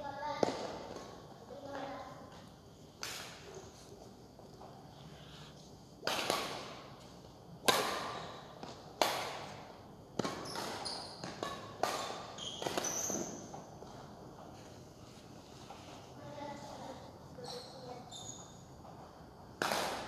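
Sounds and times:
rackets hitting shuttlecock: 0.3s - 1.2s, 3.0s - 3.6s, 6.0s - 13.9s, 19.6s - 20.0s.

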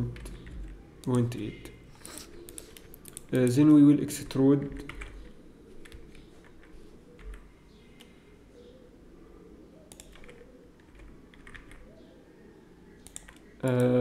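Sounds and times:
keyboard and mouse clicks: 2.0s - 3.8s, 9.9s - 11.8s, 13.0s - 14.0s.

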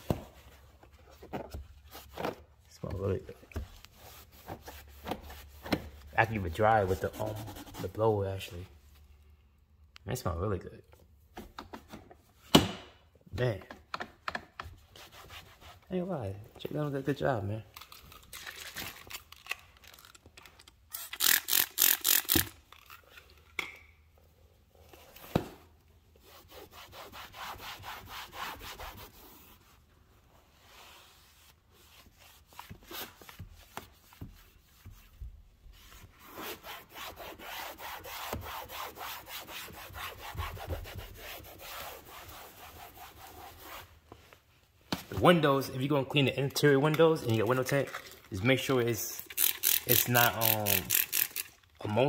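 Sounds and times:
cloth wiping door panel: 3.6s - 8.0s, 26.2s - 43.9s.

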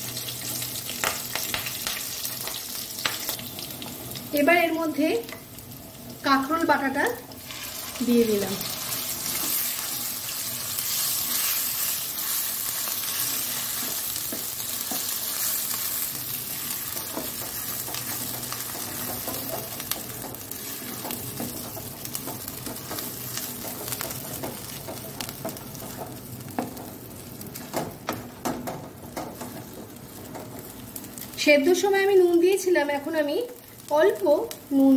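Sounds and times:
paste sizzling in hot oil: 6.2s - 27.6s
wooden spatula scraping a pan: 7.4s - 27.0s.

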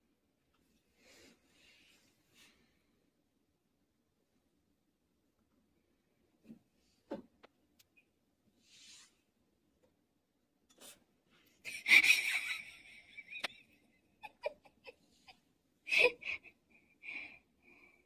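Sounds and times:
person laughing wheezily: 11.7s - 13.6s, 14.2s - 16.6s.

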